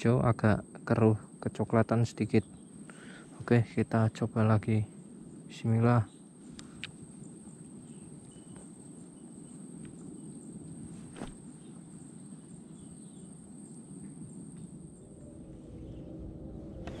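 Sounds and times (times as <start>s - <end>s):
crickets chirping: 0.0s - 17.0s
low outdoor rumble: 0.0s - 17.0s.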